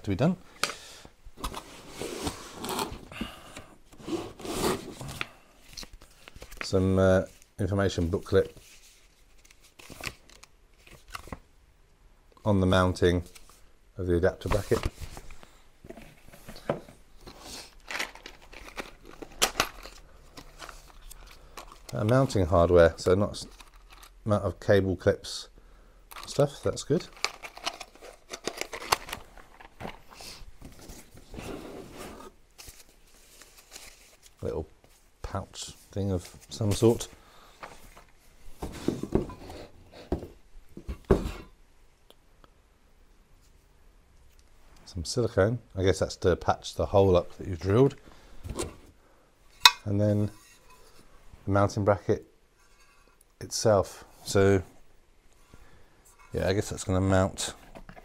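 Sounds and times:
packaging rustling and crinkling: 0:16.2 - 0:22.3, 0:26.2 - 0:31.4, 0:32.5 - 0:34.5.

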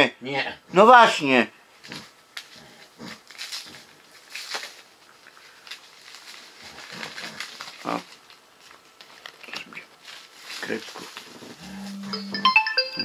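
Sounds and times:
plastic packaging rustling: 0:03.2 - 0:11.6.

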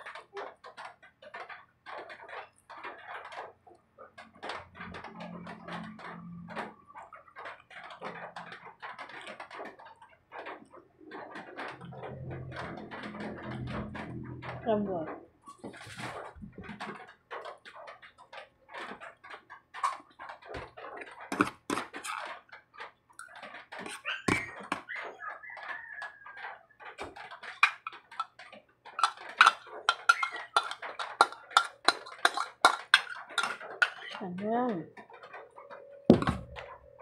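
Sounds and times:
spoon scraping against bowl: 0:21.3 - 0:22.2, 0:27.6 - 0:28.3, 0:29.0 - 0:34.2
ladle hitting cooking pot: 0:29.0 - 0:34.1, 0:36.1 - 0:36.6.

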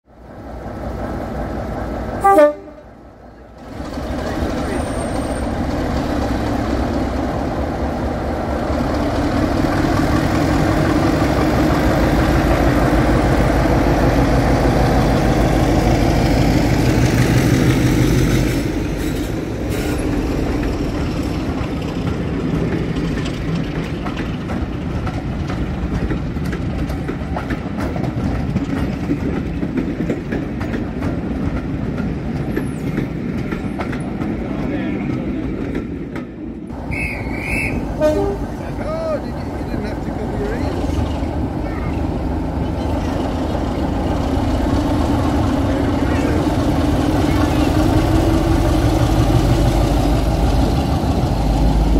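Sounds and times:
locomotive horn toot: 0:02.2 - 0:02.9, 0:36.9 - 0:38.6
coaches rolling by: 0:20.0 - 0:51.9.

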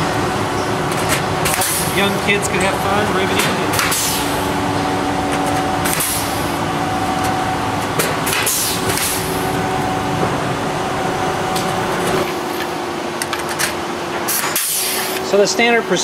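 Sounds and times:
steady mechanical hum: 0:00.0 - 0:16.0
hiss of exhaust air: 0:03.9 - 0:04.5, 0:05.9 - 0:06.6, 0:08.4 - 0:09.5, 0:14.3 - 0:15.2.

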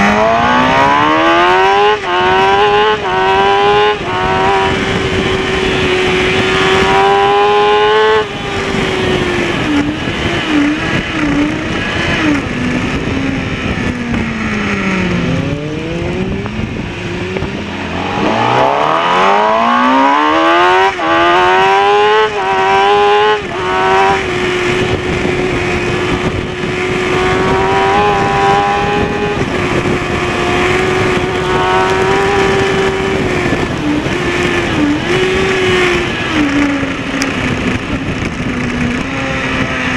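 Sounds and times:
gear upshifts: 0:00.0 - 0:39.9
motorcycle engine revving: 0:00.0 - 0:39.9
wind rush: 0:00.0 - 0:39.9.

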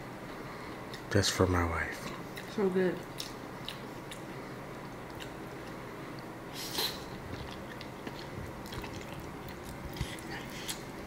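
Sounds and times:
person chewing food: 0:02.3 - 0:11.0.

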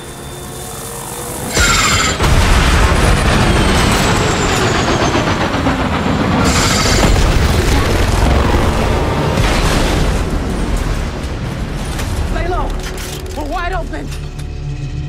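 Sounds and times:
helicopter rotor and engine: 0:00.0 - 0:15.0
explosion burst and boom: 0:01.6 - 0:05.3, 0:06.4 - 0:12.5.

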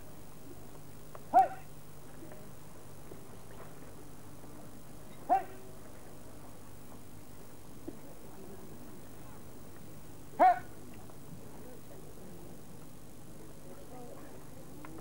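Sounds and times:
kiai shouts: 0:01.3 - 0:01.7, 0:05.3 - 0:05.6, 0:10.4 - 0:10.7.

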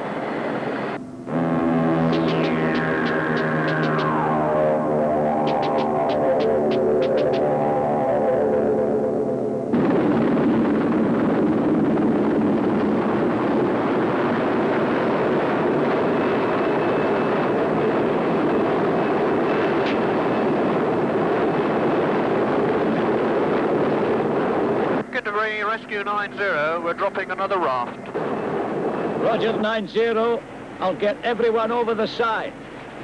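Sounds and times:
faint high whine: 0:00.0 - 0:33.0
helicopter hovering: 0:00.0 - 0:33.0
background music: 0:01.0 - 0:09.8.

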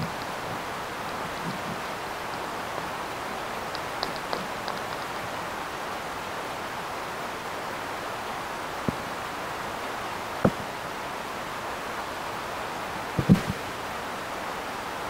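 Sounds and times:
faint ticks: 0:00.0 - 0:05.3
microphone hiss: 0:00.0 - 0:15.0.

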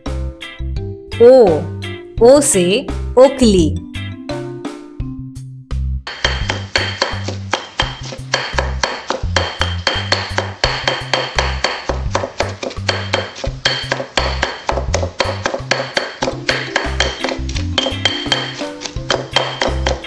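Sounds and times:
background music with steady beat: 0:00.0 - 0:20.0
stone pestle pounding in mortar: 0:06.1 - 0:20.0.

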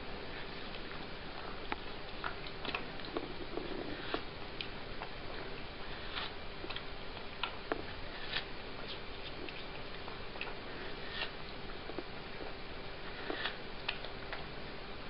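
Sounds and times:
cat chewing watermelon: 0:00.0 - 0:15.0
steady hiss and faint hum: 0:00.0 - 0:15.0.

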